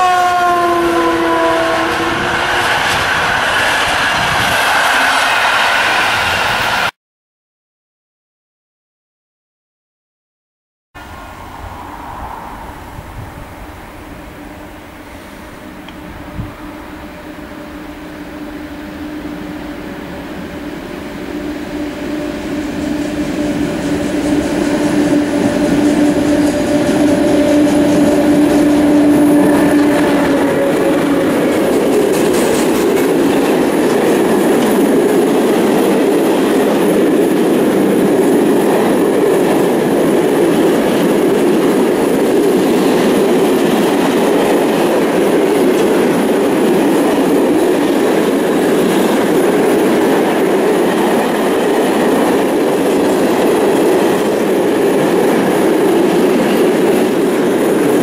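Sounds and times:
locomotive two-note hum: 0.0 - 2.5, 11.0 - 34.0
freight wagons rumbling on rails: 11.0 - 58.0.

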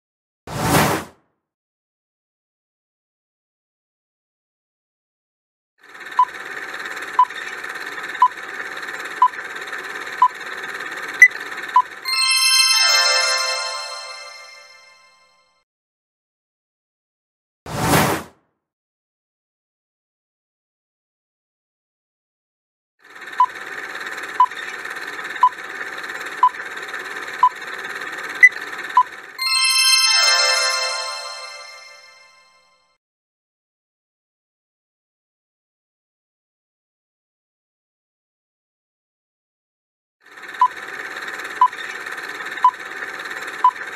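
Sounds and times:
bright chime: 12.1 - 15.3, 29.4 - 32.6.

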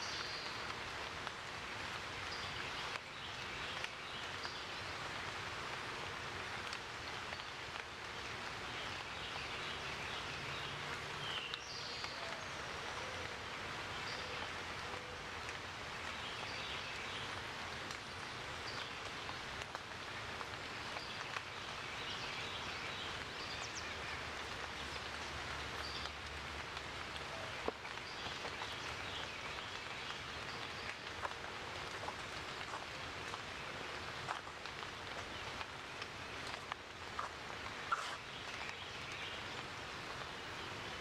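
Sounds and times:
steady outdoor hiss: 0.0 - 41.0
faint bird chirps: 37.2 - 38.7.

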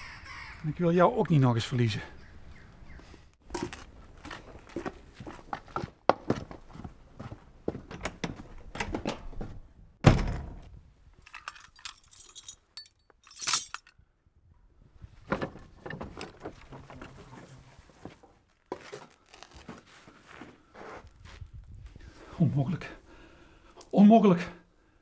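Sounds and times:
footsteps: 3.0 - 9.6
wooden door thudding open: 7.9 - 10.7.

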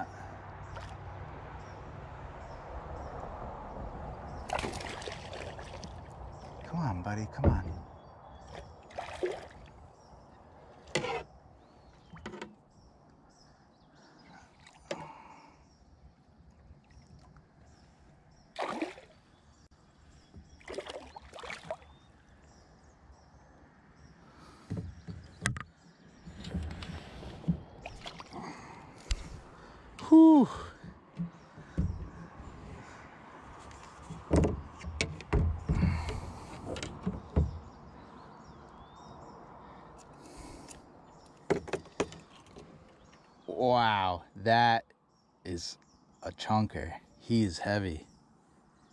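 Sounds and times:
fish splashing in water: 4.4 - 6.2, 8.8 - 9.7, 18.6 - 19.2, 20.6 - 22.0
knocks and thumps in kayak: 7.4 - 9.5, 24.6 - 25.7, 30.8 - 32.7, 34.0 - 37.9, 41.5 - 42.7.

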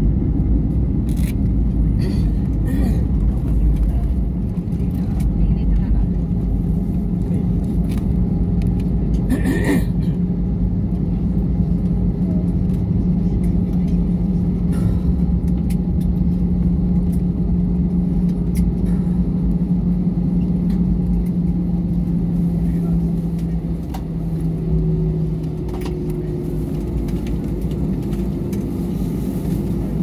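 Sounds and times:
engines and wheels rumbling: 0.0 - 30.0
low engine hum: 0.0 - 30.0.

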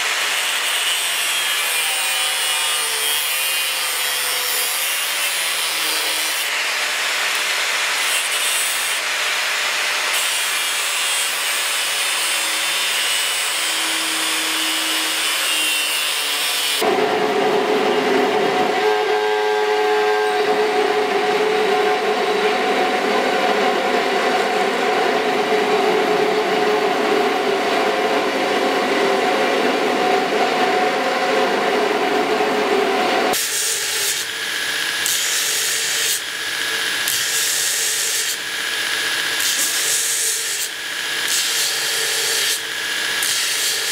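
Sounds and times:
angle grinder cutting steel: 0.0 - 17.0, 33.3 - 43.9.

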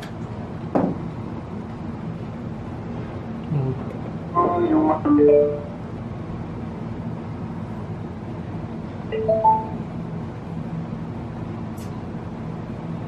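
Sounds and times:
amplifier hiss and hum: 3.0 - 6.6, 9.0 - 10.1
rising three-note chime: 9.2 - 9.8.

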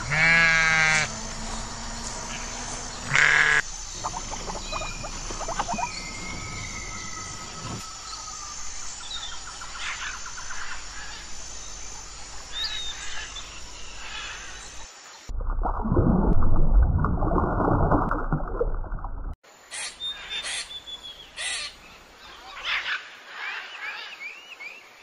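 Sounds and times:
goat bleating: 0.0 - 1.1
harsh rattling bird calls: 0.0 - 14.8, 19.6 - 24.4
long whistled bird notes: 3.6 - 10.5.

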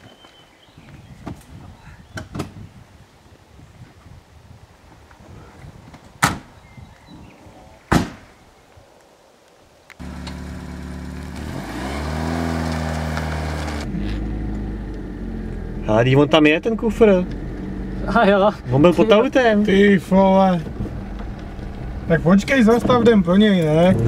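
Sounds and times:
car doors slamming: 6.2 - 6.5, 7.9 - 8.3
car engine pulling away: 10.0 - 24.0.

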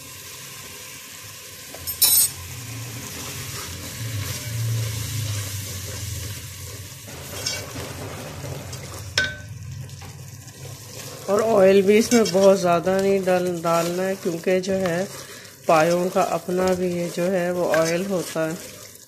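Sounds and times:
food sizzling in oil: 0.0 - 19.0
metal clink against pot: 1.8 - 2.4, 9.2 - 9.5.

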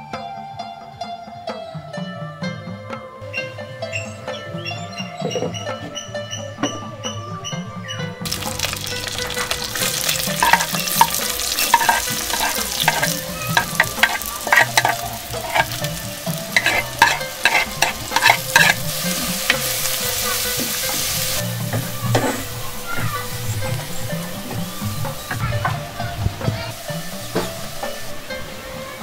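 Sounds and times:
onions sizzling in hot oil: 8.2 - 28.0
wooden spoon scraping pot: 8.3 - 21.4.

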